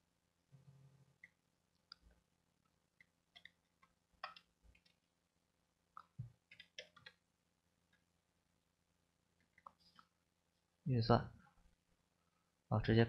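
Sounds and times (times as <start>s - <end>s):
computer mouse clicks: 3.0s - 5.0s, 6.0s - 7.2s
keyboard key presses: 6.0s - 7.2s.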